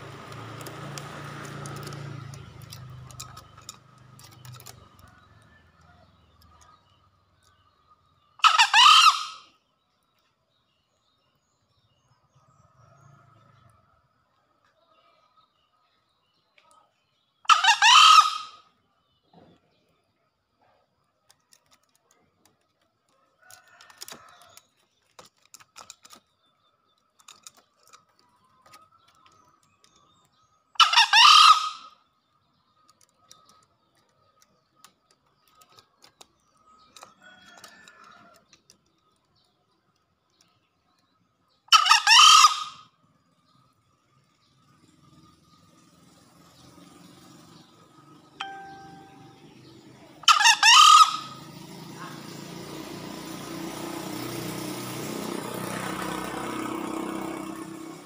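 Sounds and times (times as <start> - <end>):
junglefowl crowing: 8.4 - 9.5, 17.5 - 18.6, 30.8 - 32.0, 41.7 - 42.8, 50.2 - 52.2.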